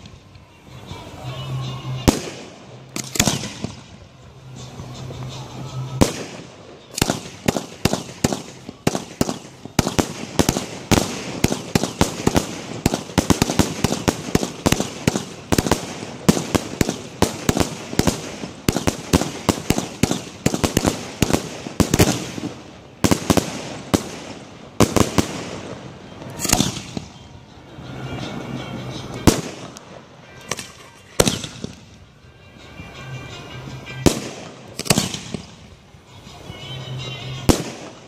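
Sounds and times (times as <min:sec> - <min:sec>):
fireworks launching and bursting: 0:01.9 - 0:28.4, 0:29.0 - 0:32.1, 0:34.0 - 0:35.8, 0:37.4 - 0:38.0.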